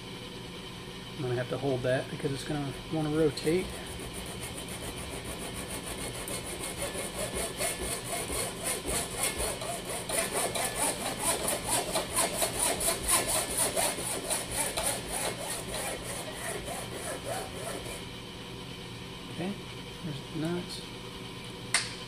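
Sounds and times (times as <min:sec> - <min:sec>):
hacksaw sawing plastic: 0:03.4 - 0:18.0.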